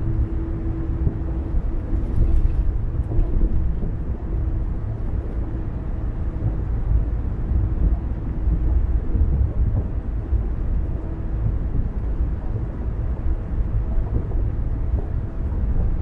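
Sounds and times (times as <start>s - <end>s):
car tyres and engine rumbling: 0.0s - 16.0s.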